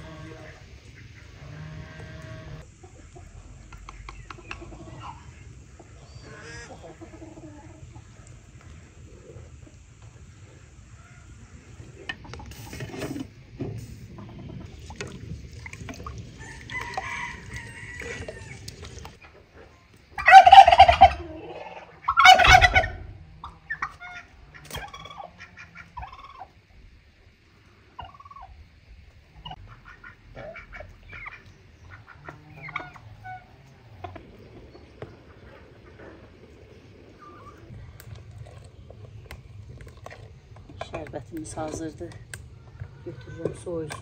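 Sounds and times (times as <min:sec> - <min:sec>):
fowl calling: 0:00.0 - 0:08.2, 0:20.1 - 0:26.6, 0:29.4 - 0:34.2
turkey gobbling: 0:00.0 - 0:08.2, 0:20.1 - 0:26.6, 0:27.9 - 0:28.6, 0:29.3 - 0:34.2.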